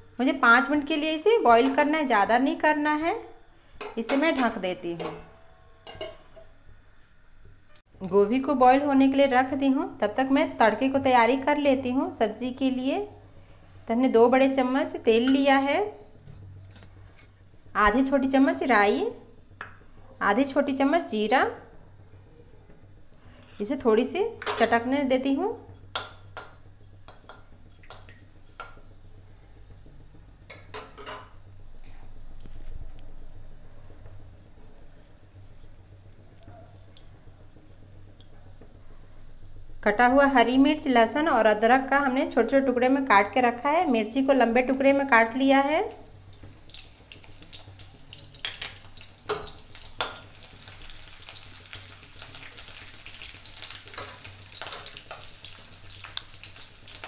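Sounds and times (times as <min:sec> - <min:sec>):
seeds crackling in hot oil: 0:22.7 - 0:57.0
food sizzling in hot oil: 0:44.9 - 0:57.0.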